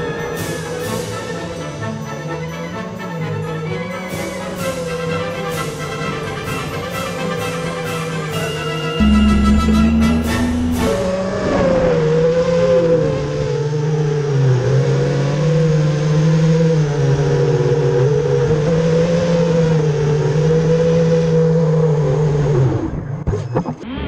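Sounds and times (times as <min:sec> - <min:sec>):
drone motors whining: 0:09.0 - 0:24.0.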